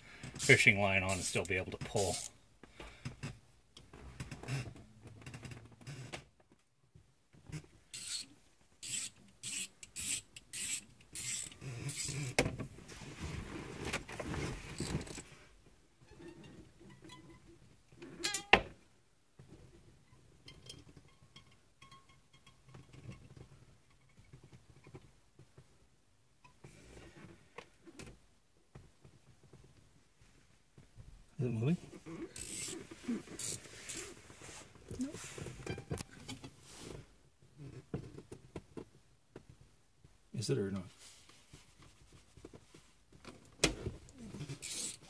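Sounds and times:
fishing line rasping through seal: 7.9s - 12.4s, 32.2s - 35.5s, 44.5s - 45.0s.

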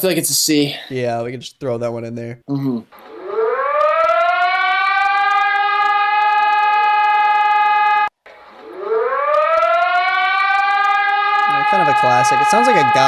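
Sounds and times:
emergency alert siren winding up: 2.9s - 13.0s.

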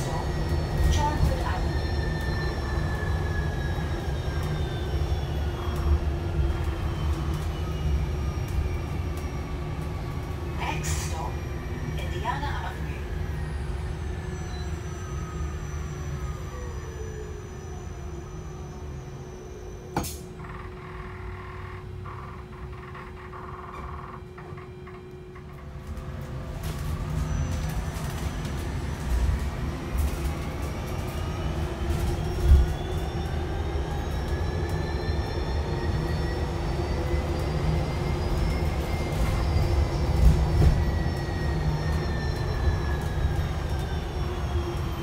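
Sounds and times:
bus road rumble: 0.0s - 4.6s, 5.3s - 14.9s, 24.3s - 45.0s.

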